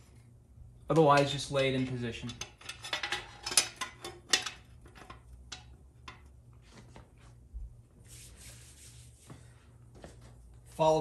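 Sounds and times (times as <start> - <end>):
faint steady hum: 0.0 - 11.0
soft metal rub: 8.0 - 9.6.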